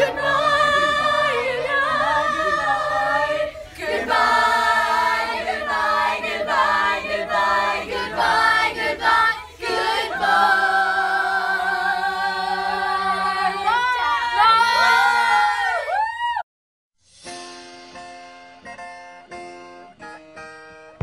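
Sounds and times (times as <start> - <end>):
teenagers singing unaccompanied: 0.0 - 14.5.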